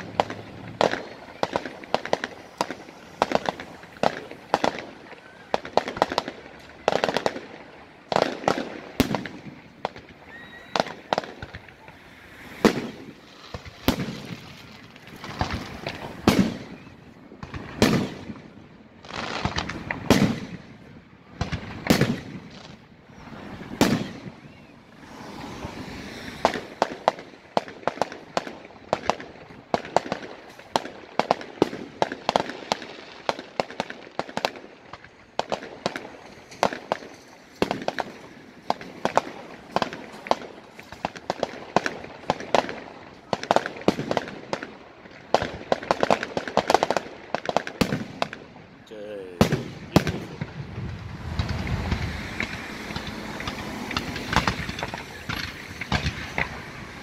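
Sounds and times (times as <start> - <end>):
firework pops: 0.0 - 7.4, 8.1 - 18.4, 19.1 - 20.6, 23.7 - 48.4, 49.4 - 57.0
firework shells bursting: 0.0 - 7.5, 49.4 - 57.0.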